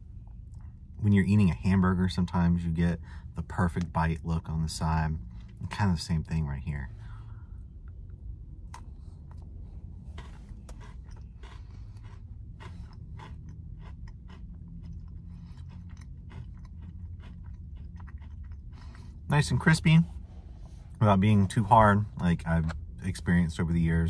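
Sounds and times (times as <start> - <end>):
steady low hum: 0.0 - 24.0
person chewing crunchy chocolate: 8.7 - 19.3.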